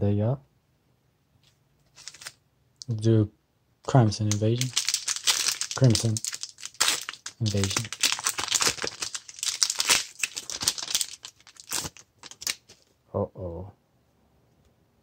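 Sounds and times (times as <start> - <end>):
foil wrapper tearing and crinkling: 2.0 - 2.4, 4.2 - 12.9.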